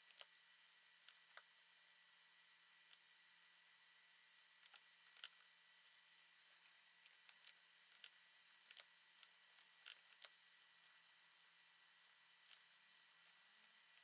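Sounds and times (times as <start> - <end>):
mouse and keyboard clicks: 4.6 - 5.5, 6.6 - 10.4.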